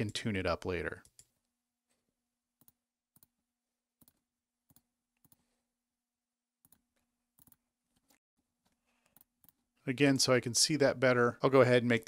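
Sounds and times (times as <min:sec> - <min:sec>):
computer mouse clicks: 0:04.0 - 0:05.4, 0:06.6 - 0:09.6.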